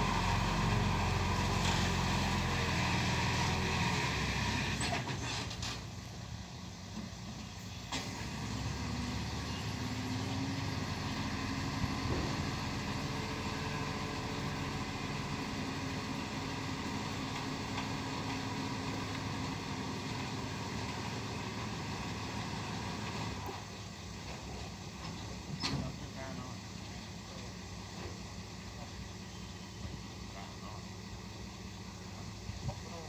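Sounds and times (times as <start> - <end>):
diesel truck engine revving: 0.0 - 5.6, 7.8 - 24.1.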